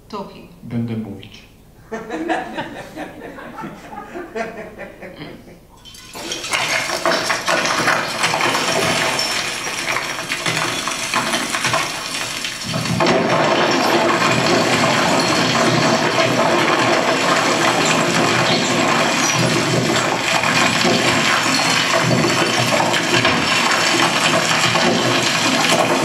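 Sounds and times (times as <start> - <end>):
rubble tumbling and pouring: 5.8 - 26.0
stones clinking together: 5.9 - 26.0.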